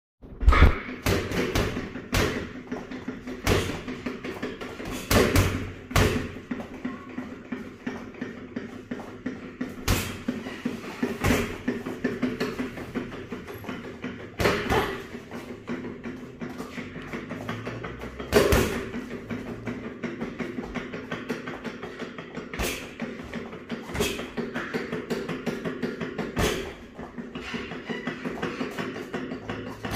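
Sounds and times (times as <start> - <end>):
boxing gloves hitting punching bag: 0.4 - 29.9.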